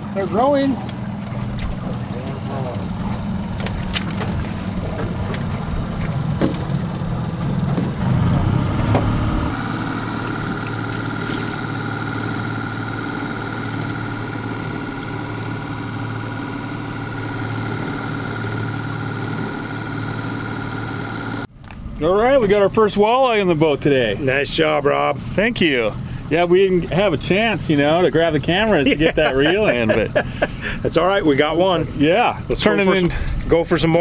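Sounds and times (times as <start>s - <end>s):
boat motor running: 0.0s - 34.0s
high whine: 1.5s - 23.3s.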